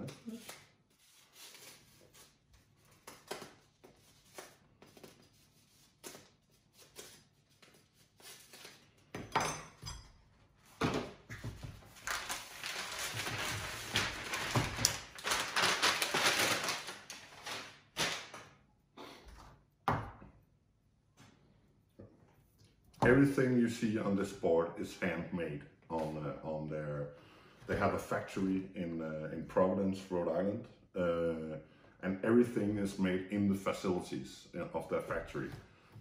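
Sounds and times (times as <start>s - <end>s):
wrapping crinkling and rustling: 11.5s - 18.5s.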